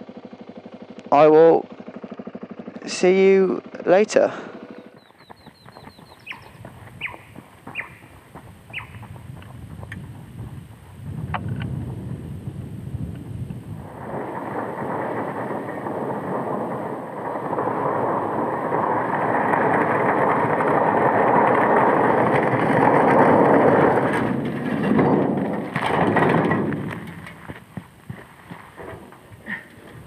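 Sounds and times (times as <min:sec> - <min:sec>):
sign scraping over gravel: 0:13.4 - 0:30.0.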